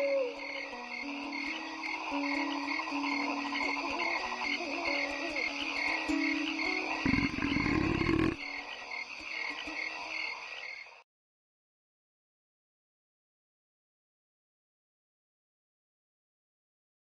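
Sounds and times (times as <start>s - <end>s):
frogs croaking: 0.0s - 11.0s
deep loud frog croak: 6.3s - 8.9s.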